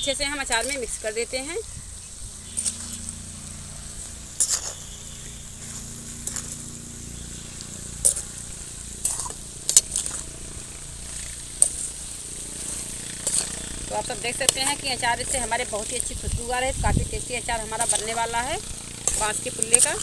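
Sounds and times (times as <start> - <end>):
light sizzle in hot oil: 0.1 - 20.0
metal spatula scraping a pan: 4.0 - 6.6, 7.3 - 16.3, 17.7 - 20.0.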